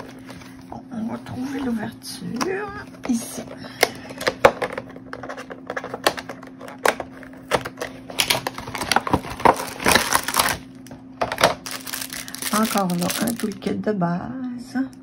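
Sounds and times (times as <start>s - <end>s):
plastic packaging crinkling: 4.9s - 13.8s.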